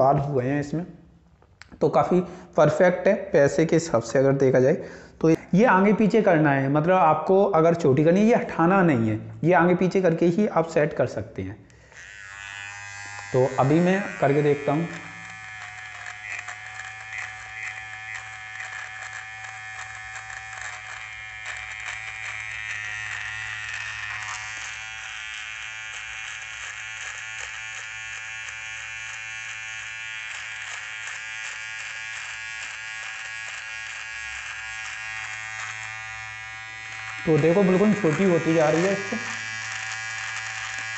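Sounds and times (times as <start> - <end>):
beard trimmer buzzing: 11.7 - 40.9
hair being clipped crackle: 11.8 - 40.9.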